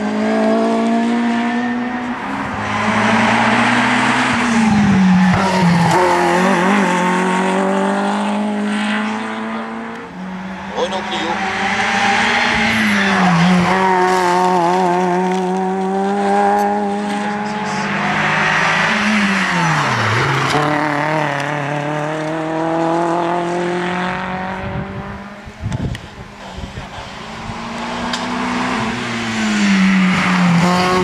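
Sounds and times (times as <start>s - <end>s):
rally car engines revving: 0.0s - 31.0s.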